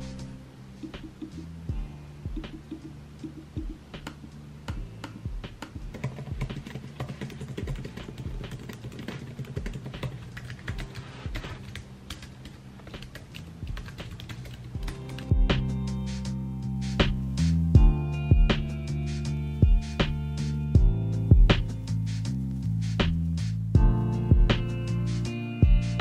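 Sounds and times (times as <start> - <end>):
fast typing on laptop keyboard: 5.9 - 15.4.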